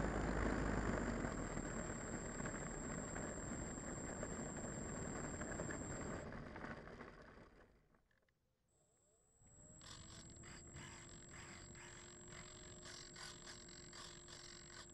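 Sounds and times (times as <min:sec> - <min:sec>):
electric motor and propeller whirring: 0:00.0 - 0:06.3, 0:09.6 - 0:14.9
model rolling over asphalt: 0:00.0 - 0:07.9
thin high whine: 0:01.3 - 0:06.2.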